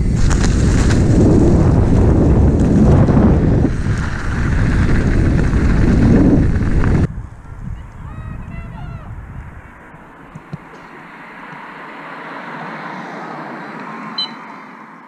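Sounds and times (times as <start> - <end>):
wind buffeting microphone: 0.0 - 11.8
bike tyre noise: 0.0 - 14.7.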